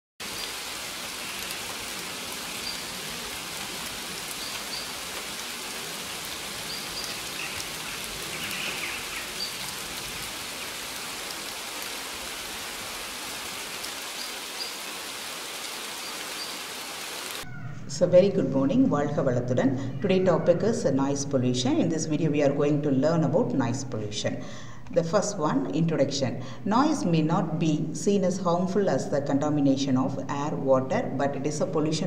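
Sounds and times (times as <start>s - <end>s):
waterfall rushing: 0.2s - 17.4s.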